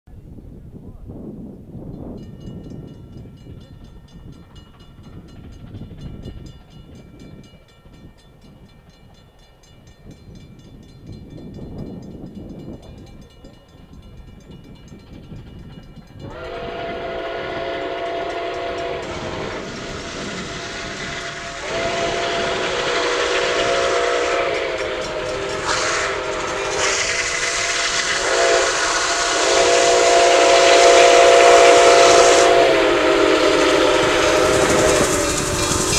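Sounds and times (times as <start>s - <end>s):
steam locomotive chime whistle: 1.9s - 35.9s
steam hissing: 16.3s - 35.9s.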